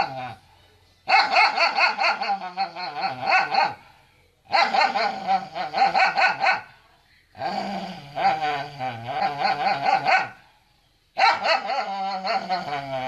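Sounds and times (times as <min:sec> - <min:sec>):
dog barking rapidly: 0:01.1 - 0:03.9, 0:04.5 - 0:06.7, 0:09.6 - 0:10.4, 0:11.2 - 0:12.6.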